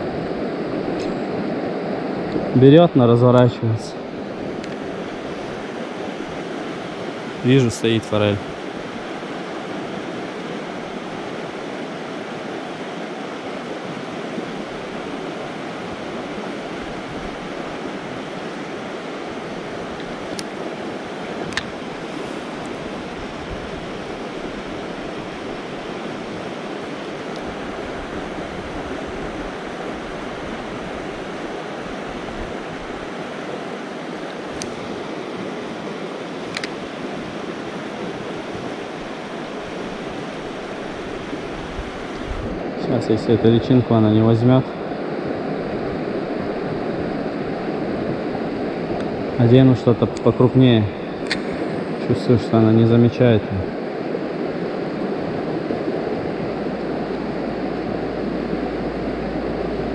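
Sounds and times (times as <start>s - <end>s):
faint sharp clicks: 36.5s - 36.8s
river rushing over rocks: 43.8s - 59.9s.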